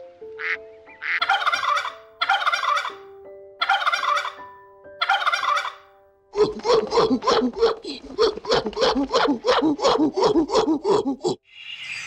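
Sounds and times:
soft background music: 0.0s - 8.2s
duck quack: 0.4s - 3.0s
turkeys gobbling: 0.4s - 3.0s, 3.6s - 4.4s, 5.0s - 5.8s, 6.4s - 10.6s.

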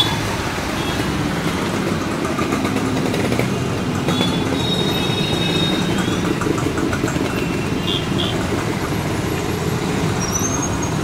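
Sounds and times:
road traffic rumble: 0.0s - 11.0s
high squeal: 10.2s - 11.0s.

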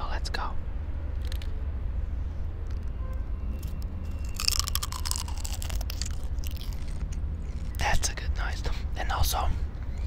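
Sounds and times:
croissant crunching while chewed: 3.6s - 8.0s.

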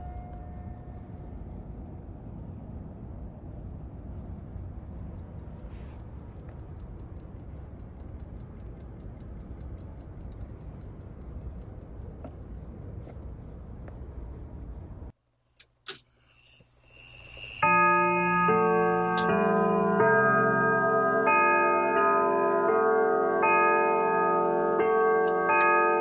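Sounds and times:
clock ticking: 0.0s - 15.7s, 17.6s - 26.0s
sharp clicks: 0.0s - 16.1s.

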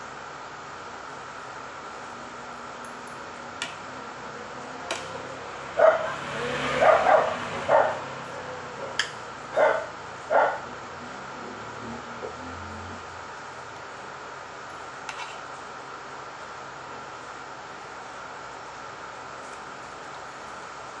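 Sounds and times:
dog barking: 5.8s - 8.2s, 9.5s - 10.7s.

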